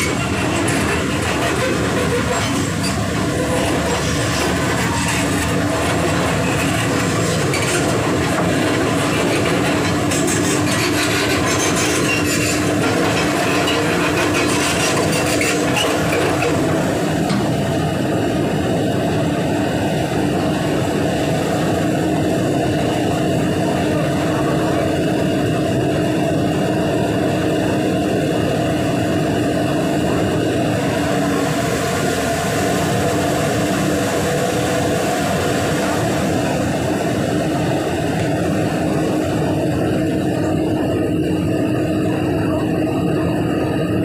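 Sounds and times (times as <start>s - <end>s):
heavy machinery droning: 0.0s - 44.0s.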